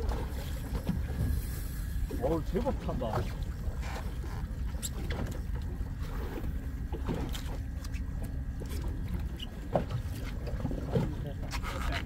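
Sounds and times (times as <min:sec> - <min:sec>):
boat engine rumble: 0:00.0 - 0:12.0.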